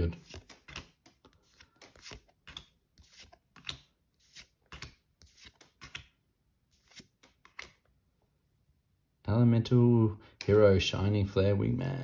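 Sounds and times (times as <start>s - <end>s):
cards being flipped: 0.0s - 7.9s.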